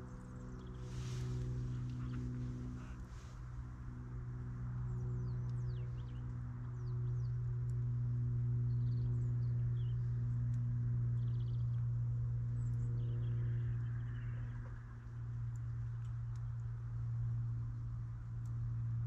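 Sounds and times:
steady low hum: 0.0 - 19.0
faint ticks: 13.7 - 19.0.

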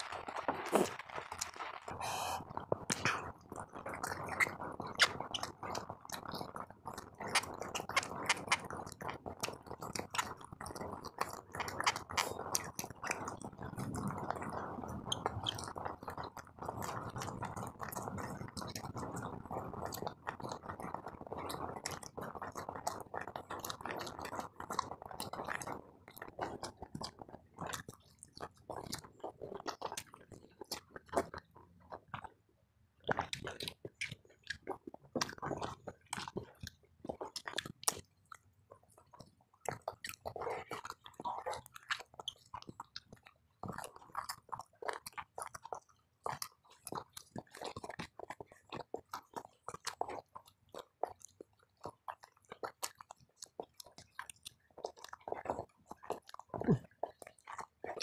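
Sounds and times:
chewing food with wet mouth clicks: 0.0 - 58.0.

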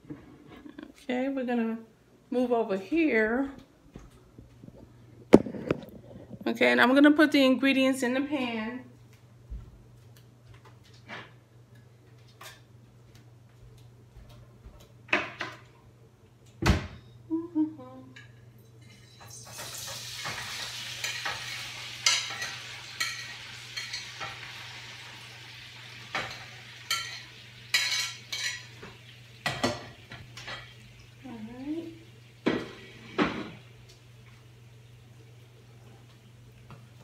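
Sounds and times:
tofu sizzling in frying pan: 19.3 - 29.4.

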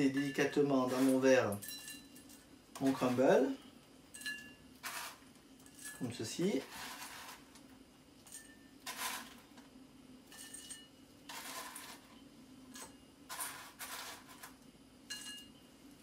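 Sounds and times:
spoon scraping in metal bowl: 0.0 - 2.2, 2.8 - 3.5, 4.2 - 7.5, 8.4 - 9.4, 10.3 - 14.5
crumble spilling into glasses: 8.8 - 9.5.

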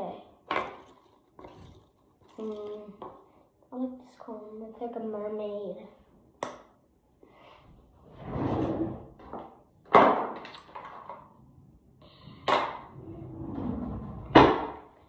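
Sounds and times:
rustling and scraping: 0.6 - 3.0, 8.0 - 9.4, 12.3 - 14.6.

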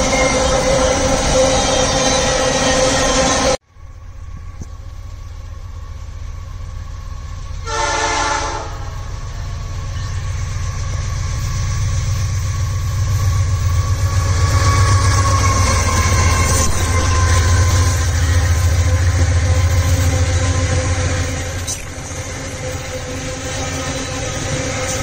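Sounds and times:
diesel locomotive engine rumble: 0.0 - 25.0
train horn blast: 7.6 - 9.5.

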